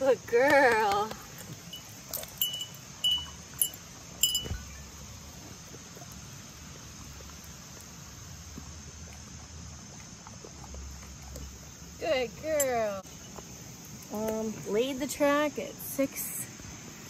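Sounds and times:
insects chirring: 0.0s - 17.0s
metal tag tinging on harness: 1.7s - 4.6s.

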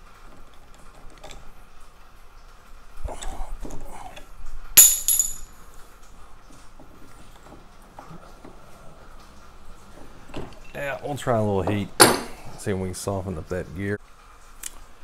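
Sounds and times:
ringing metal clink: 4.8s - 5.6s.

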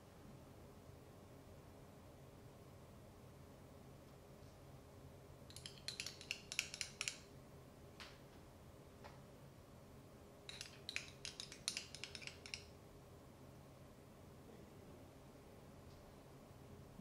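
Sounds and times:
quick light clicks and clinks: 5.5s - 7.3s, 10.5s - 12.7s.

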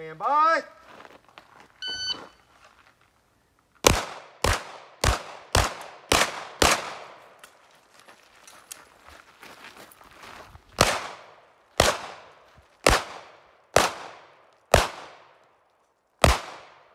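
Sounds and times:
shot timer beep: 1.8s - 2.4s
pistol shots: 3.8s - 7.3s, 10.8s - 15.4s, 16.2s - 16.9s.

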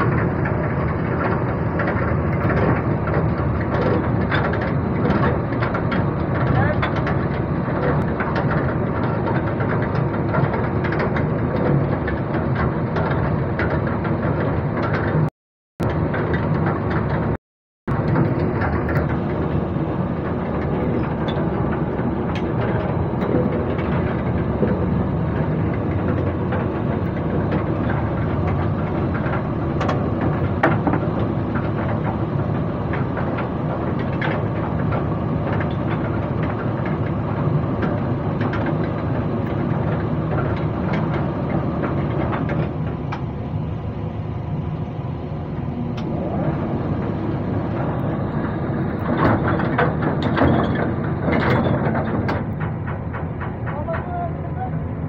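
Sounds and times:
winch mechanical drone: 0.0s - 55.0s.

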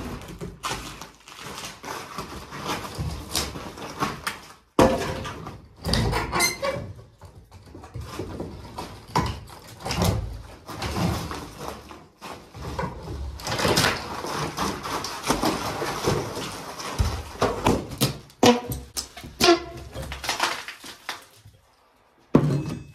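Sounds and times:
debris clattering on floor: 0.0s - 6.2s, 6.8s - 22.9s
wooden boards creaking and cracking: 0.0s - 21.7s.

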